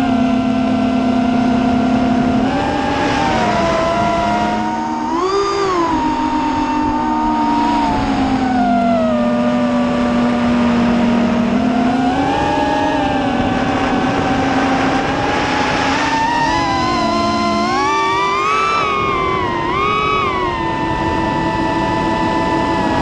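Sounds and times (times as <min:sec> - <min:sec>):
drone motors whining: 0:00.0 - 0:23.0.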